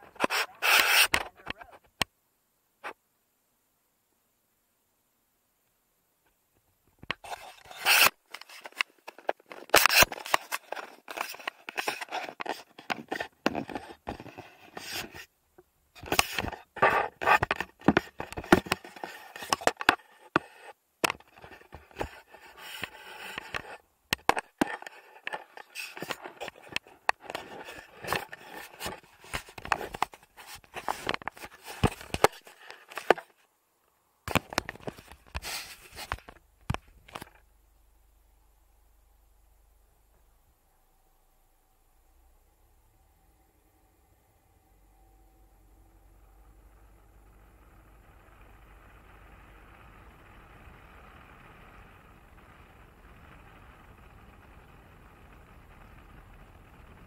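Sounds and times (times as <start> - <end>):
camera handling scraping and rubbing: 0.0 - 1.4, 7.1 - 15.3, 16.0 - 33.4, 34.3 - 37.4.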